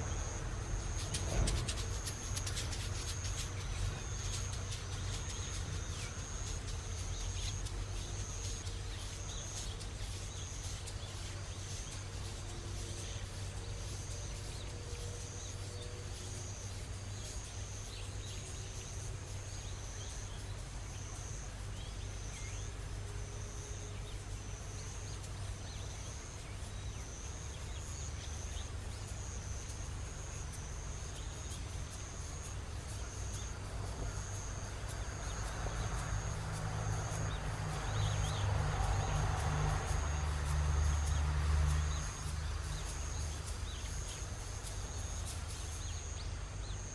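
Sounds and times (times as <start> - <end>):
low outdoor rumble: 0.0 - 46.9.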